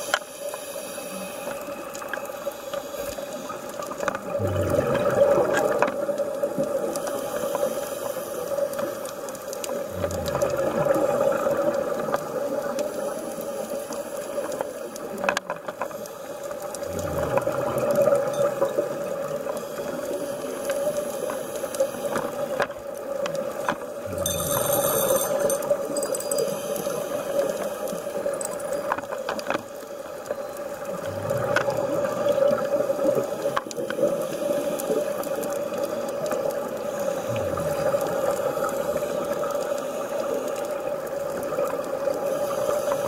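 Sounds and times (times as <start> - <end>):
gurgling rush of exhaled bubbles: 4.2 - 6.8, 9.8 - 12.6, 16.8 - 19.4, 30.9 - 35.1, 37.0 - 39.5.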